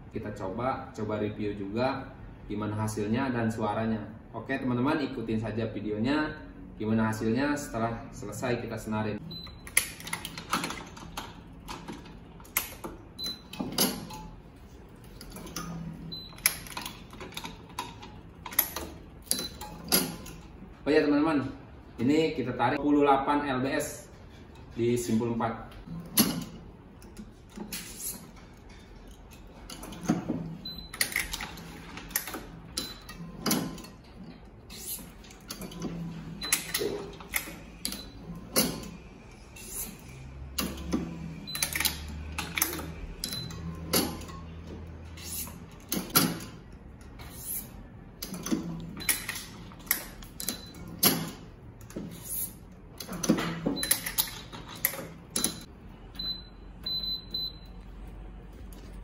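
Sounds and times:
stringing machine clamps clicking: 39.6 - 55.7.

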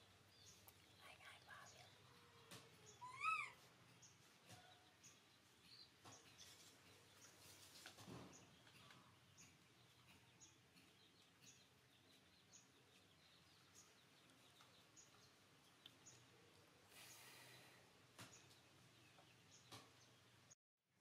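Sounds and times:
small bird chirping: 0.0 - 20.6
soft rustle: 6.2 - 9.1.

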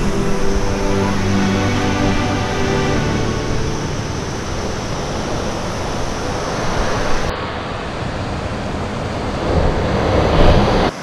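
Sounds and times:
waterfall rushing over rocks: 0.0 - 11.0.

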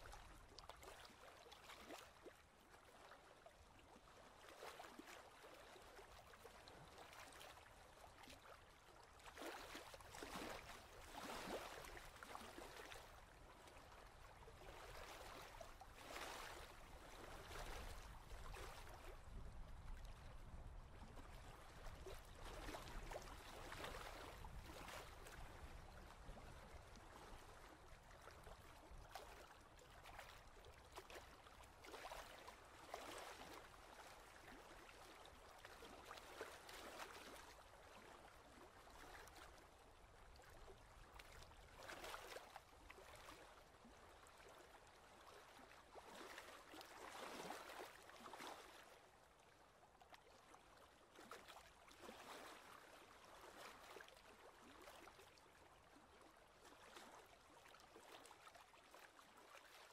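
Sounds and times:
small waves lapping on rocks: 3.9 - 20.6, 21.2 - 48.9, 51.2 - 55.2.

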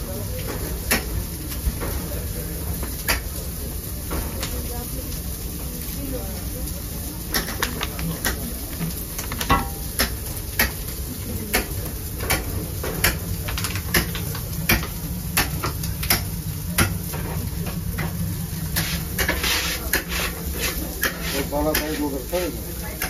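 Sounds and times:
knife chopping on cutting board: 18.8 - 22.0.

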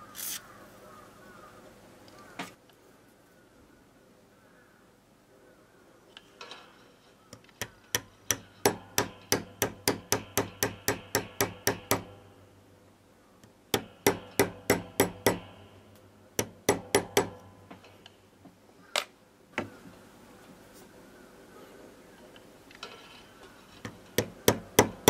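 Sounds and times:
hammer tapping metal punch: 7.4 - 12.3, 13.7 - 15.7, 16.4 - 18.0, 23.8 - 25.0.

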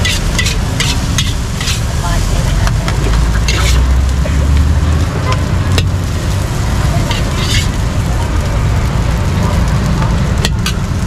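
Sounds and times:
metal ladle scooping in wok: 0.0 - 1.9, 3.4 - 3.9, 7.0 - 7.8.

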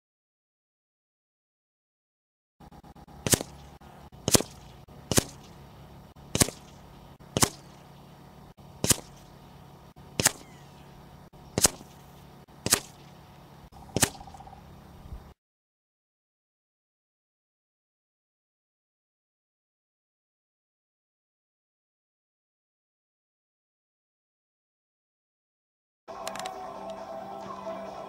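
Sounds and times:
air rifle shots: 3.2 - 5.6, 6.2 - 8.1, 8.8 - 9.4, 10.1 - 10.8, 11.5 - 13.2, 13.8 - 14.4.

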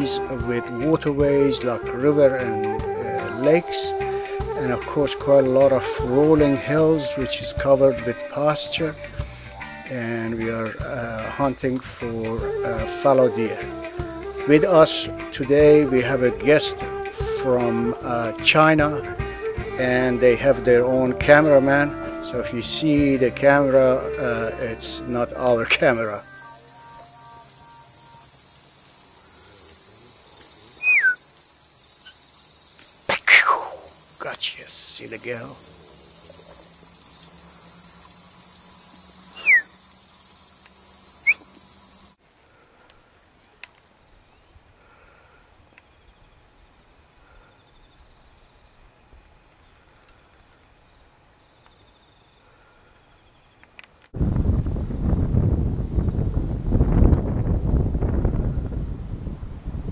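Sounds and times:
insects chorus: 0.0 - 43.2, 44.4 - 59.9
whistle falling in pitch: 25.7 - 28.3, 30.8 - 31.2, 38.9 - 39.9, 41.2 - 41.7.

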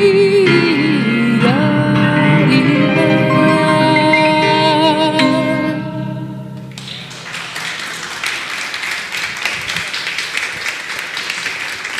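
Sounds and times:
piano chord ringing: 0.5 - 7.3
audience applause: 6.7 - 11.9.

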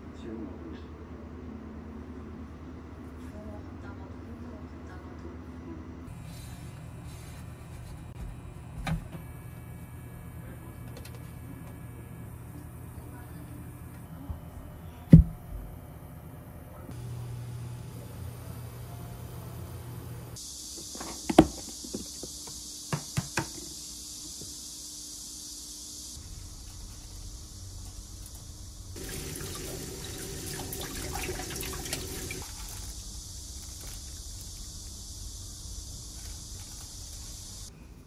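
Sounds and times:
steady high hiss: 16.9 - 37.8
water splashing in a bowl: 29.0 - 32.5.

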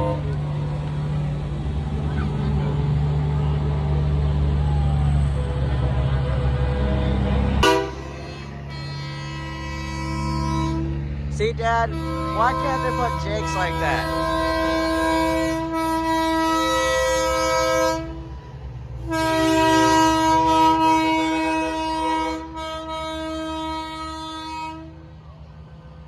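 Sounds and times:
truck engines rumbling: 0.0 - 26.0
truck air horn blasts: 6.2 - 18.4, 19.0 - 25.0.

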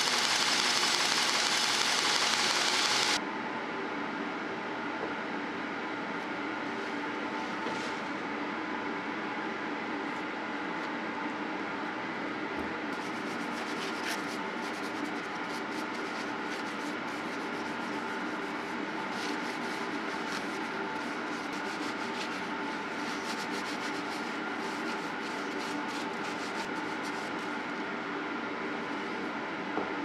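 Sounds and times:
steady mechanical hum: 0.0 - 30.0
paper towel wiping steel: 13.0 - 27.5.

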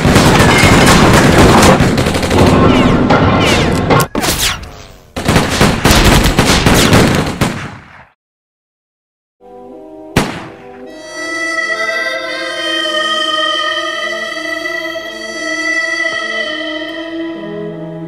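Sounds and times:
rapid gunfire: 0.0 - 3.7, 5.2 - 8.1.

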